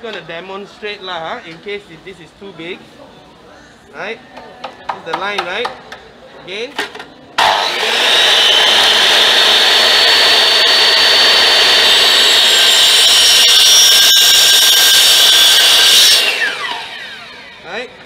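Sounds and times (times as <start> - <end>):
miter saw cutting bamboo: 7.4 - 17.7
saw motor winding down: 7.4 - 17.7.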